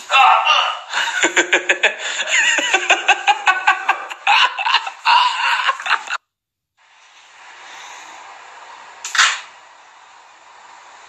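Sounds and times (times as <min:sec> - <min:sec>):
men laughing loudly: 0:00.0 - 0:06.2
faint steady hiss: 0:06.8 - 0:11.0.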